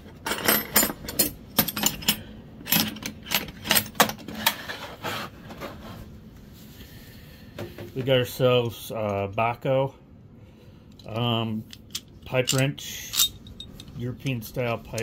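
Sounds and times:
box sliding on wooden bench: 0:04.4 - 0:06.1
hand tools clinking: 0:11.7 - 0:15.0.

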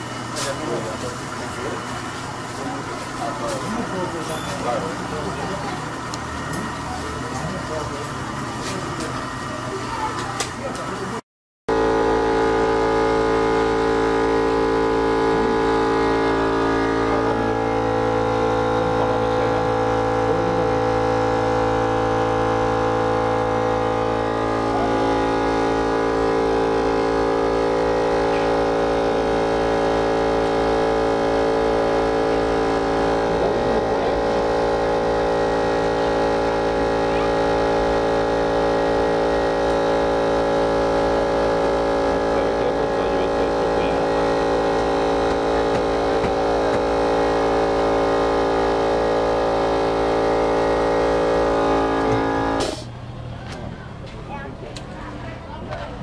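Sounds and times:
electric motor hum: 0:11.7 - 0:53.1.

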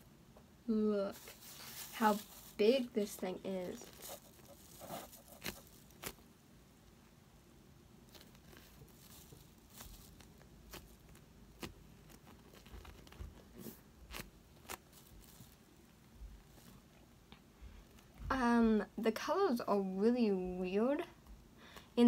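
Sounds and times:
foam toy squeezed clicks and rustles: 0:03.7 - 0:06.2.

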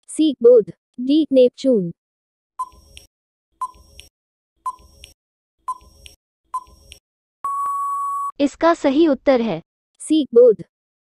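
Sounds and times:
long steady beep: 0:07.4 - 0:08.4
short countdown beeps: 0:07.4 - 0:08.4.

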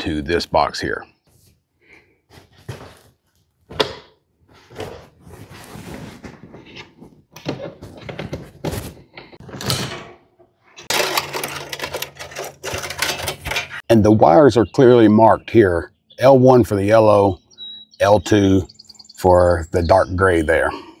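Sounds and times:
wires scraping and rustling: 0:04.5 - 0:09.6, 0:10.6 - 0:13.8.

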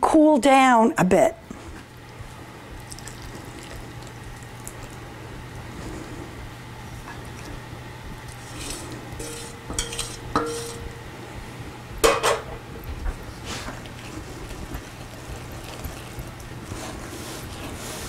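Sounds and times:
spoon stirring dough: 0:08.2 - 0:10.9
metal spoon scraping saucepan: 0:08.4 - 0:10.9
sharp metal clanks: 0:09.2 - 0:10.9.

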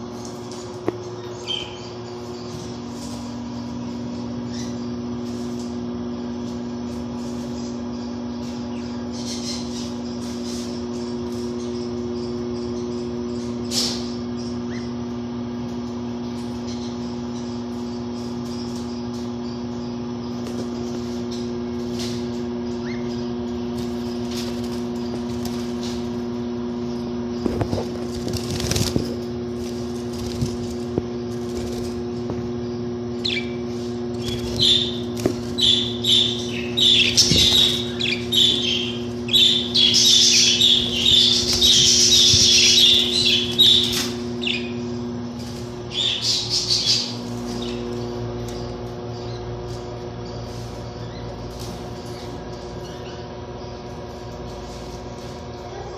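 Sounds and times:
steady low hum: 0:00.0 - 0:55.9
budgerigars chirping: 0:01.2 - 0:02.7, 0:32.7 - 0:45.0, 0:45.8 - 0:54.1.

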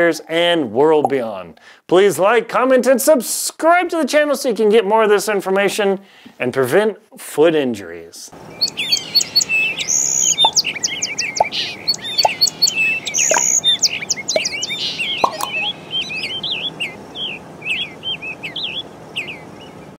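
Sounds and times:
small birds chirping and trilling: 0:08.4 - 0:19.9.

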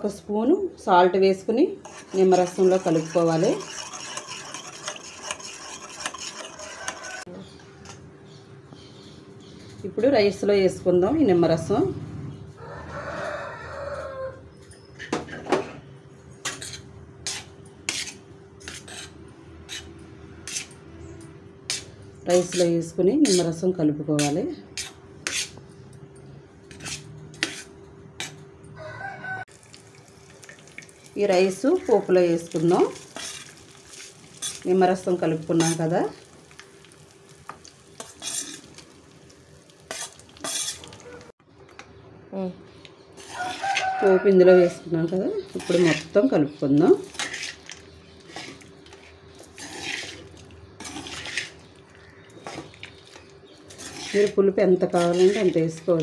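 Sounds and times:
rice scraped from steel bowl: 0:01.8 - 0:07.2, 0:38.0 - 0:38.7, 0:39.9 - 0:40.9, 0:47.0 - 0:51.6, 0:53.7 - 0:55.6
spoon scraping steel plate: 0:01.8 - 0:07.3, 0:16.4 - 0:20.8, 0:21.7 - 0:23.6, 0:24.2 - 0:25.6, 0:26.7 - 0:28.4, 0:34.3 - 0:35.9, 0:38.0 - 0:38.7, 0:39.8 - 0:41.2, 0:43.2 - 0:44.2, 0:45.4 - 0:46.2, 0:47.0 - 0:51.7, 0:53.7 - 0:56.0.

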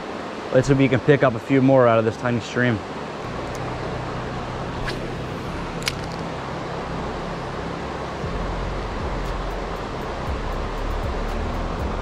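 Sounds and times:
stream flowing: 0:00.0 - 0:10.9
low steady hum: 0:02.1 - 0:12.0.

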